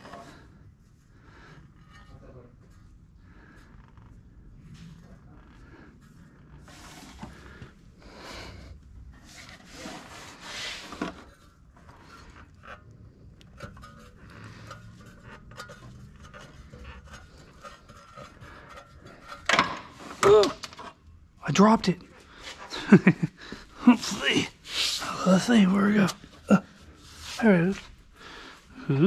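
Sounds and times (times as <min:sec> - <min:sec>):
hand tools scraping metal: 0:09.8 - 0:21.0
part dropping: 0:19.2 - 0:20.9.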